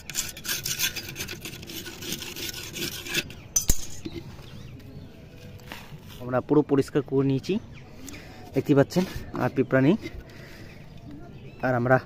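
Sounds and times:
hand scraping soil in flowerpot: 0:00.0 - 0:03.5, 0:05.3 - 0:06.9.

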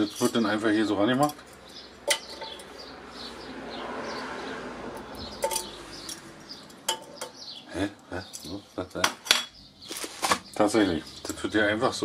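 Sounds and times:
metallic clinks: 0:00.0 - 0:02.9, 0:05.0 - 0:07.4.

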